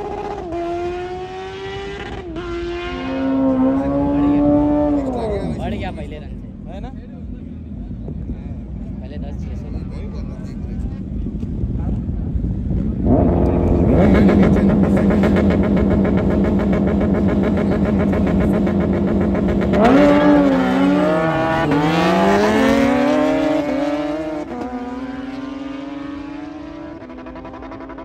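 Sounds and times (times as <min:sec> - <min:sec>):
motorcycle engine revving and accelerating: 0:00.0 - 0:06.3, 0:10.8 - 0:28.0.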